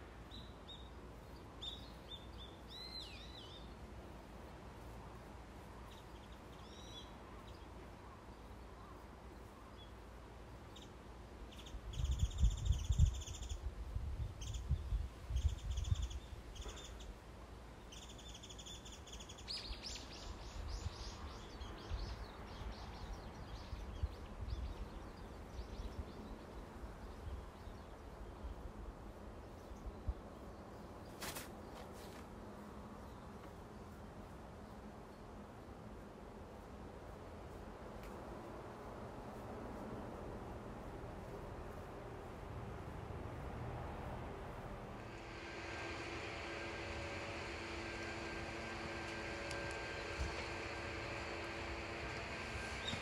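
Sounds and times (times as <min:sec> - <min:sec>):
outdoor background hum: 0:00.0 - 0:53.0
birds chirping: 0:45.0 - 0:53.0.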